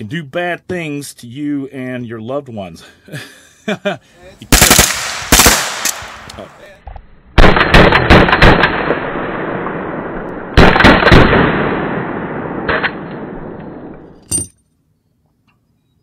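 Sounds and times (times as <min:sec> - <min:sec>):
rapid gunshots echoing: 0:04.5 - 0:06.3, 0:07.4 - 0:09.8, 0:10.6 - 0:13.6.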